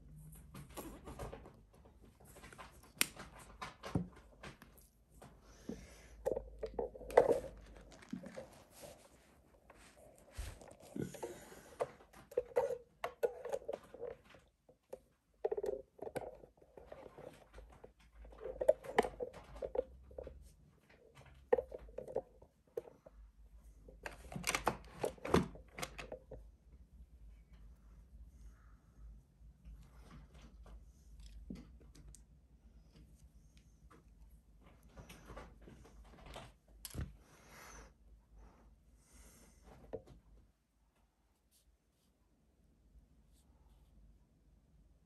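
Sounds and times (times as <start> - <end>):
handling noises on a table: 0.3 - 23.0.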